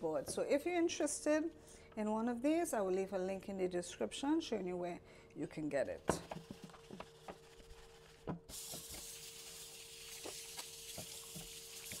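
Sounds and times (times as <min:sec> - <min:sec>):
tap water running into sink: 0:08.5 - 0:12.0.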